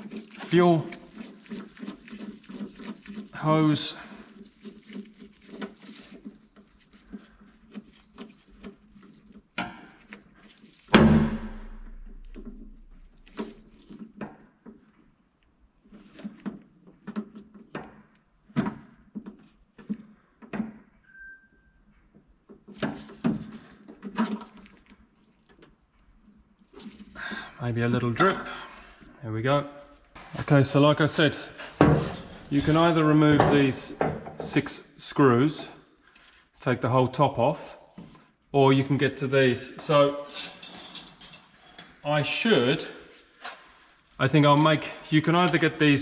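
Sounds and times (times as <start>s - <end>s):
hand tools clicking and scraping: 0.0s - 10.9s, 31.6s - 33.2s, 39.9s - 42.8s, 44.4s - 46.0s
loud knock: 11.0s - 12.1s.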